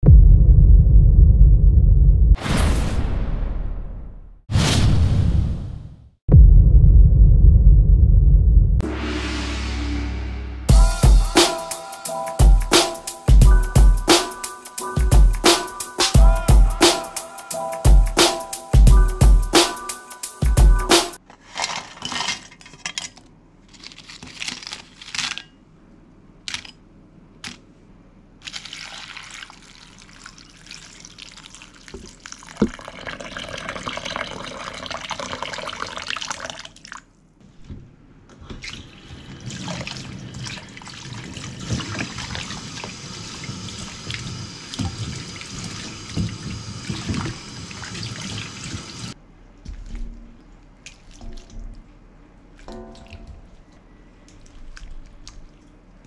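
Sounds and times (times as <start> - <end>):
water pouring into a bowl: 28.4 - 37.1, 38.6 - 50.1.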